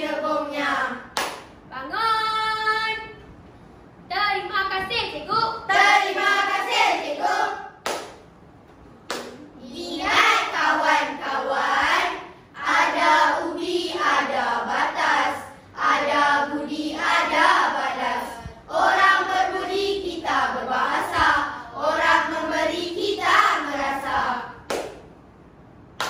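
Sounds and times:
children's chorus chanting: 0:00.0 - 0:01.2, 0:05.6 - 0:07.9, 0:09.6 - 0:24.6.

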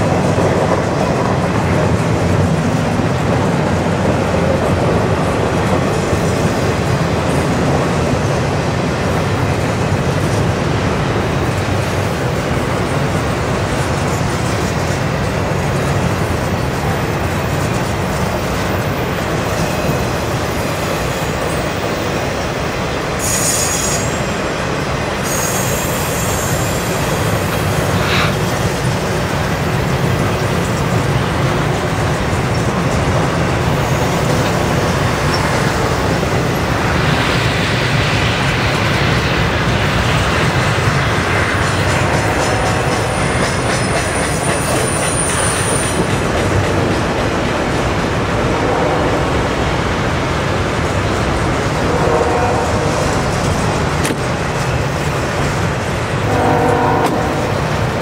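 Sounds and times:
train wheels rumbling on rails: 0:00.0 - 0:58.0
high wheel squeals: 0:23.2 - 0:24.4, 0:25.2 - 0:28.5, 0:42.6 - 0:46.1.

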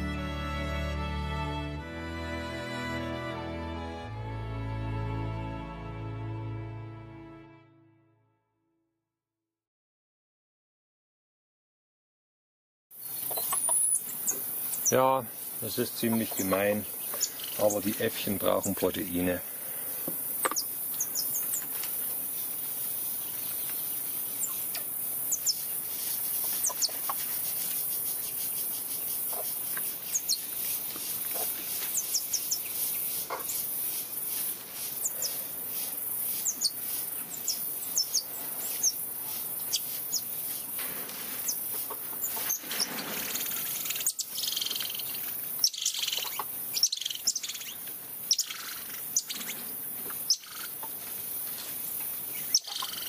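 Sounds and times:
high insect hiss: 0:13.0 - 0:53.0
monkeys chirping: 0:43.8 - 0:49.5, 0:50.3 - 0:50.8, 0:52.4 - 0:53.0.

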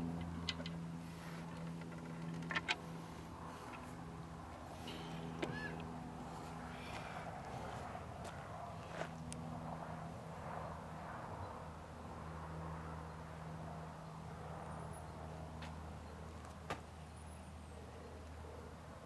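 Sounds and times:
steady low hum: 0:00.0 - 0:19.0
birds chirping: 0:00.2 - 0:07.8.

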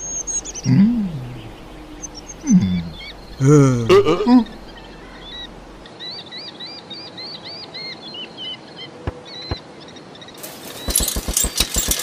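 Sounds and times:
birds chirping: 0:00.0 - 0:12.0
rapid clattering: 0:10.4 - 0:12.0
sharp clicks: 0:10.8 - 0:12.0.

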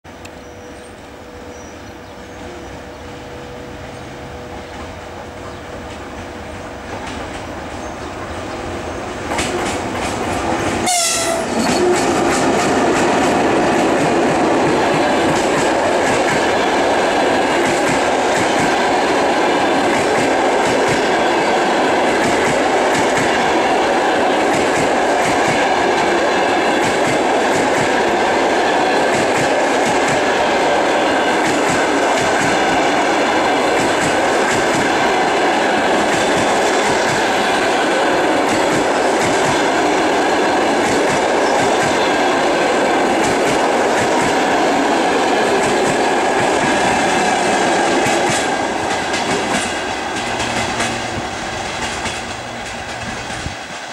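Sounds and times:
train wheels clattering over rail joints: 0:45.5 - 0:53.9.

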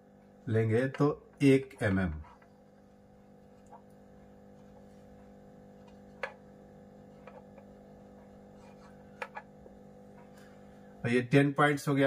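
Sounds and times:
steady low hum: 0:00.0 - 0:12.0
marker tapping on a whiteboard: 0:05.8 - 0:06.5, 0:08.6 - 0:10.3.

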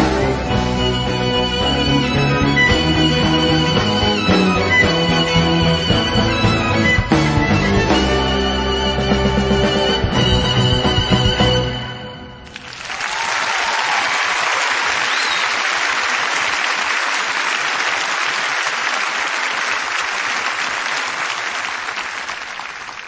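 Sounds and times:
crowd applause: 0:12.5 - 0:23.0.

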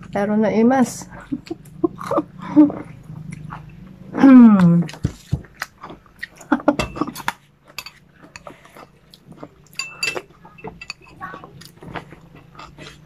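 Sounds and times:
faint low hum: 0:00.0 - 0:13.0
chewing: 0:01.1 - 0:13.0
spoon clinking against bowl: 0:09.7 - 0:11.1.

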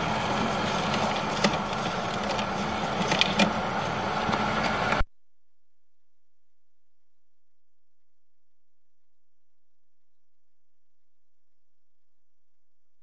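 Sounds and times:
engine humming: 0:00.0 - 0:05.0.

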